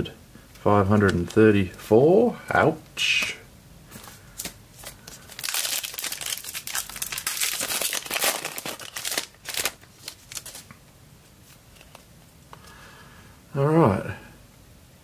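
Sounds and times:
foil wrapper crinkling: 0:04.4 - 0:10.8.

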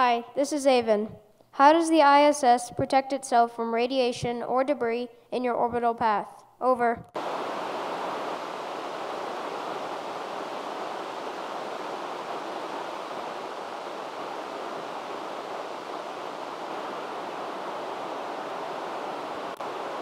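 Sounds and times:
radio static hiss: 0:07.2 - 0:20.0.

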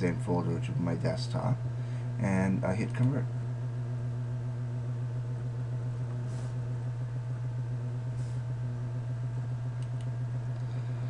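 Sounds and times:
low electrical hum: 0:00.0 - 0:11.0
soft short hisses: 0:06.3 - 0:06.6, 0:08.2 - 0:08.5.

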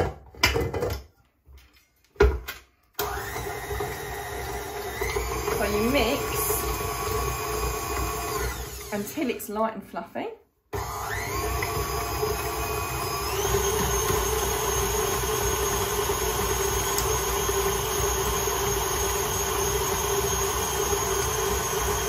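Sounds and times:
stand mixer motor whining: 0:03.0 - 0:09.0, 0:10.7 - 0:22.0.

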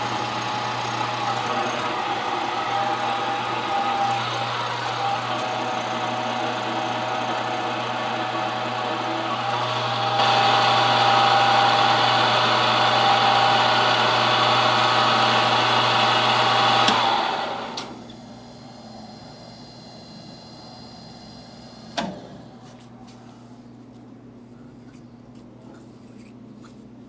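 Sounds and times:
milling machine cutting metal: 0:00.0 - 0:17.8
machine winding down: 0:00.0 - 0:22.0.

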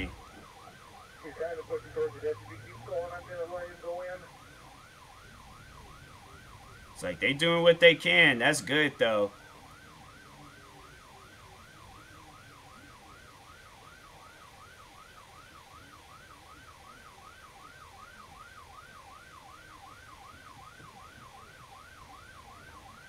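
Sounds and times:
low road rumble: 0:00.0 - 0:14.0
police siren yelping: 0:00.0 - 0:23.0.

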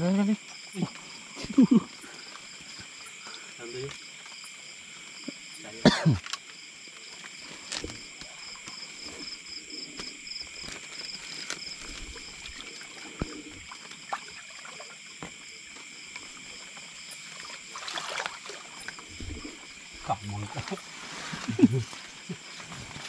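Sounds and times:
night insect chorus trilling: 0:00.0 - 0:23.0
small water splashes: 0:11.7 - 0:21.4.

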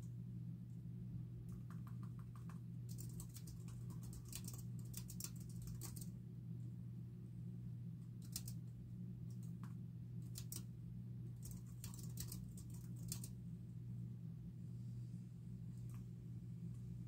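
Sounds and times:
low hum: 0:00.0 - 0:17.0
keyboard typing: 0:01.5 - 0:06.1, 0:11.4 - 0:13.3.

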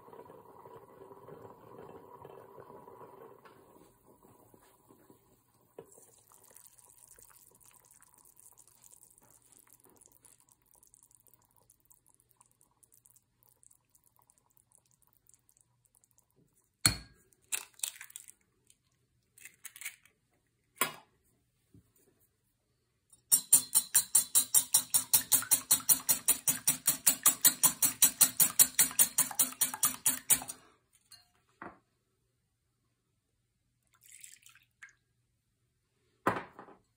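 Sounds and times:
whisk beating egg in plate: 0:23.3 - 0:31.2.

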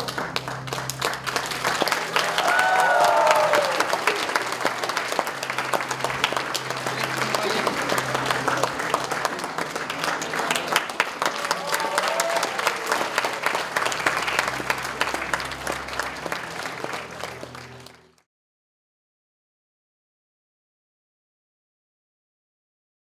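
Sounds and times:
audience applauding: 0:00.0 - 0:18.3.

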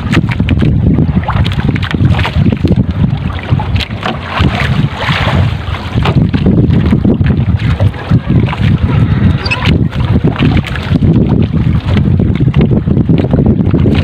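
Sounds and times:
water washing against boat hull: 0:00.0 - 0:14.0
wind buffeting microphone: 0:00.0 - 0:14.0
wet net hauled in with splashes: 0:03.3 - 0:06.3.

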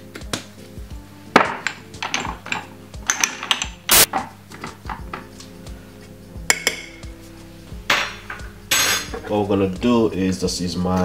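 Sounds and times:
jar and utensils clicking: 0:01.5 - 0:05.3.

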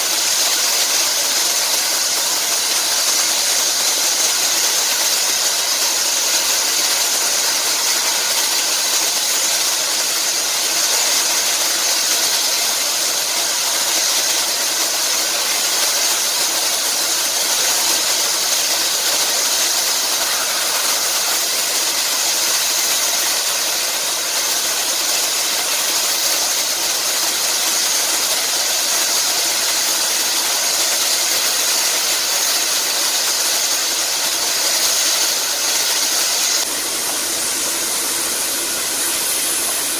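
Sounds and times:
hiss of escaping steam: 0:00.0 - 0:39.9.

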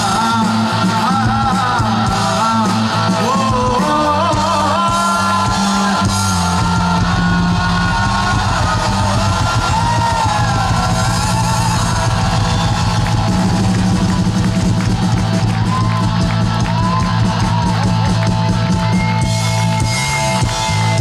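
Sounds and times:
man singing: 0:00.0 - 0:11.0
live rock band playing: 0:00.0 - 0:21.0.

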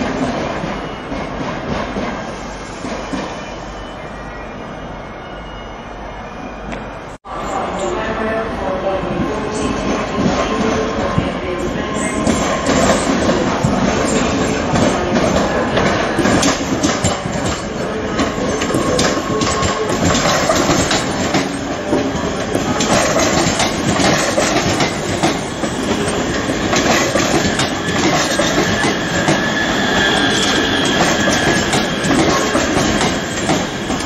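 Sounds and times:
train rolling rumble: 0:06.8 - 0:34.0
train wheels clacking over rails: 0:12.0 - 0:34.0.

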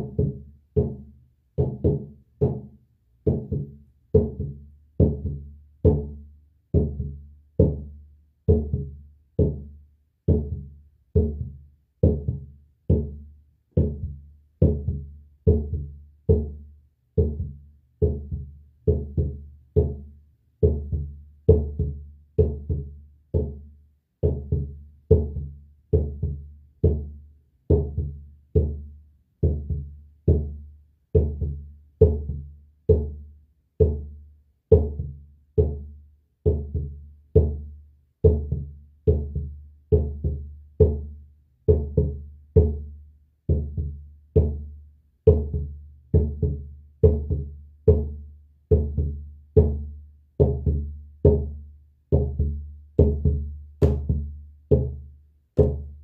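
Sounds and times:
hand drum beating: 0:52.1 - 0:55.0, 0:55.6 - 0:56.0.

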